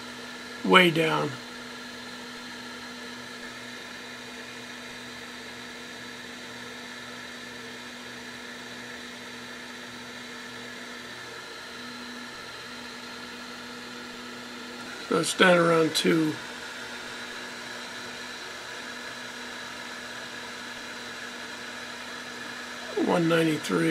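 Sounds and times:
hot air gun fan blowing: 0:00.0 - 0:23.9.

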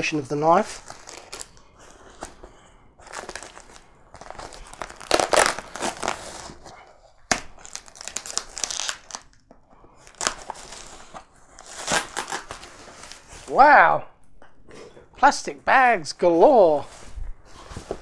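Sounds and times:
plastic bags crinkling: 0:00.0 - 0:02.4, 0:03.0 - 0:09.4, 0:10.0 - 0:13.4.

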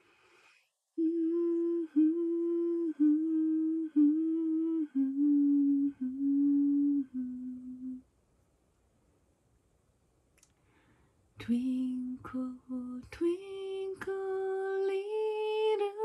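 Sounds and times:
woman humming a slow melody: 0:01.0 - 0:08.0, 0:11.4 - 0:16.0.

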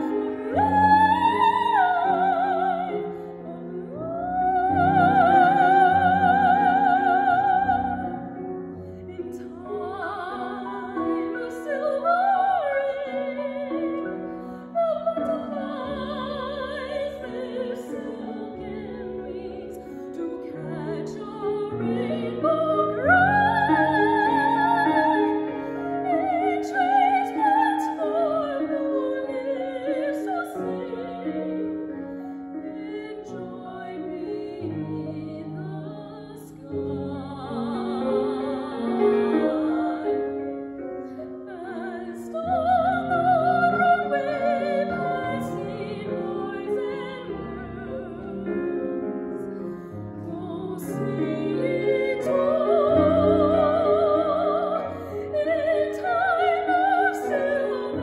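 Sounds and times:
grand piano: 0:00.0 - 0:58.0
woman singing classical: 0:00.0 - 0:58.0.

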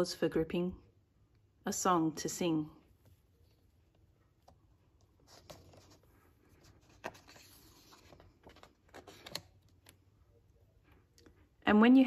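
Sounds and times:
paper rustling: 0:05.0 - 0:10.0.

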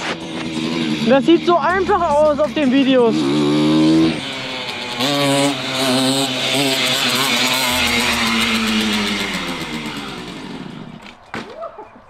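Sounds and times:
moped engine revving: 0:00.0 - 0:12.0.

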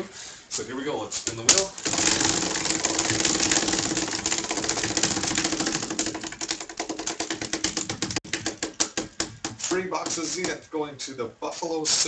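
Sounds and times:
prize wheel ticking: 0:01.8 - 0:09.0.

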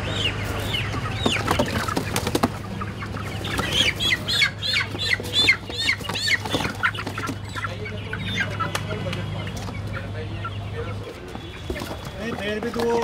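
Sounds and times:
hens squawking: 0:00.0 - 0:13.0
knocks and scuffling: 0:00.8 - 0:04.1, 0:11.0 - 0:13.0.

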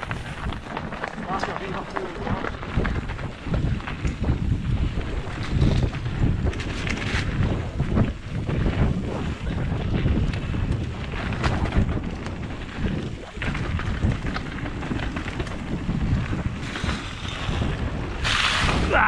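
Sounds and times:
bike clicks and knocks: 0:00.0 - 0:18.8
tyres rumbling on dirt: 0:00.0 - 0:19.0
wind buffeting microphone: 0:00.0 - 0:19.0.

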